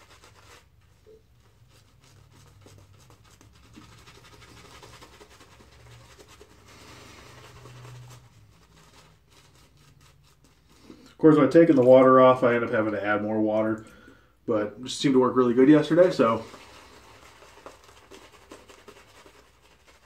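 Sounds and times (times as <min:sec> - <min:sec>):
shaving brush scratching stubble: 0:01.4 - 0:11.9, 0:15.6 - 0:20.0.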